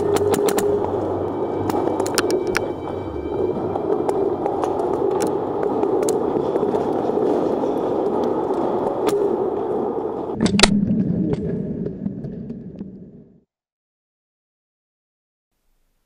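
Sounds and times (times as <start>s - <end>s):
steady rushing noise: 0.0s - 10.4s.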